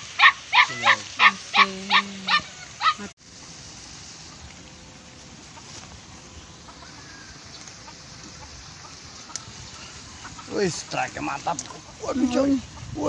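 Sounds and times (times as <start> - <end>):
animal barking rapidly: 0.0 - 3.1
faint outdoor background: 0.0 - 13.0.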